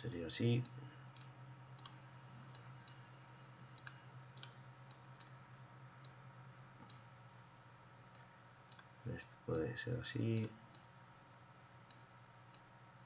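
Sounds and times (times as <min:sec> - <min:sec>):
low electrical hum: 0:00.0 - 0:13.0
faint computer mouse clicks: 0:00.6 - 0:02.0, 0:03.8 - 0:05.4.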